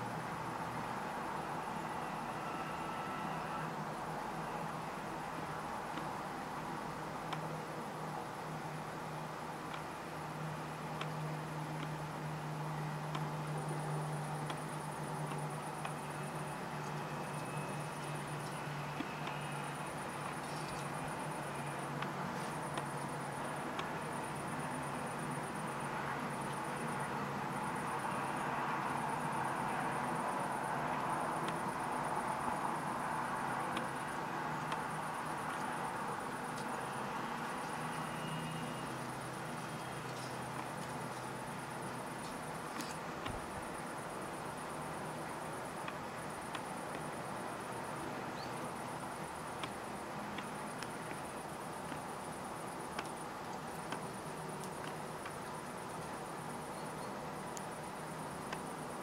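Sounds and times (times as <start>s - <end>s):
outdoor background noise: 0.0s - 59.0s
steady hiss: 0.0s - 59.0s
faint ticks: 36.5s - 36.8s, 49.6s - 52.1s, 52.9s - 56.2s, 58.4s - 58.8s.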